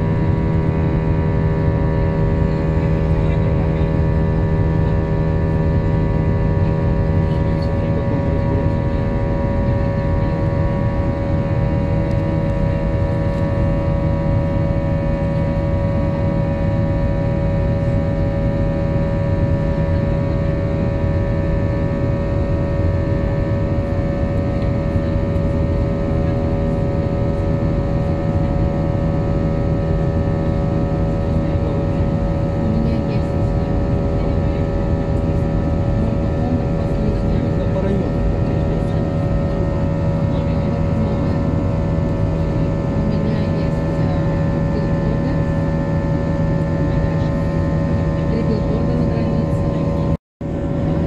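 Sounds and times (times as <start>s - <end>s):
jet engine drone: 0.0s - 51.0s
low rumble and air rush: 0.0s - 51.0s.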